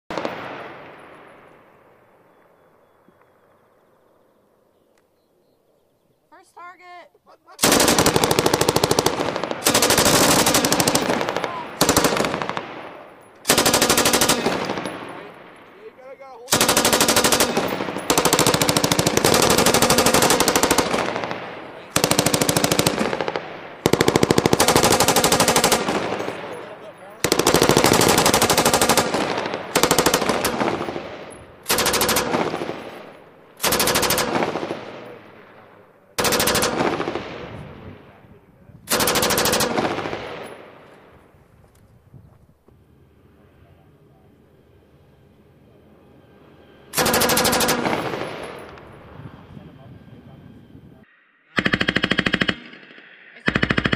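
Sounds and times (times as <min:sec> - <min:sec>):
rolling gunfire echo: 0:00.1 - 0:03.6, 0:07.6 - 0:41.4, 0:46.9 - 0:49.2
machine gun automatic fire: 0:07.6 - 0:15.3, 0:16.5 - 0:26.6, 0:27.2 - 0:33.0, 0:33.6 - 0:35.0, 0:36.2 - 0:37.4, 0:38.9 - 0:40.6, 0:46.9 - 0:48.8, 0:51.6 - 0:53.9.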